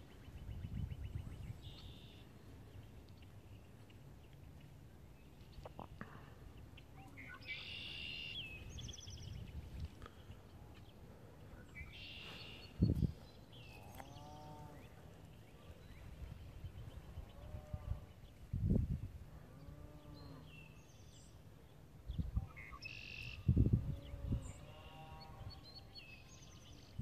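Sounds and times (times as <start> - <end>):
birds singing: 0.0 - 27.0.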